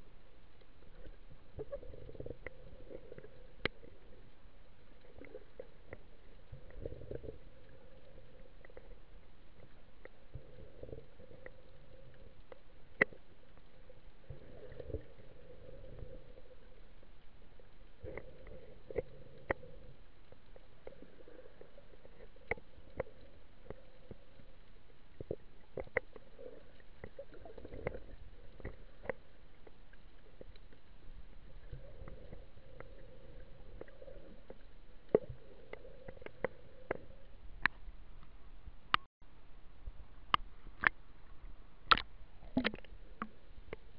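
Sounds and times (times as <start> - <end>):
underwater rumble of water movement: 0.0 - 43.9
sharp underwater clicks: 40.3 - 41.0, 41.8 - 43.8.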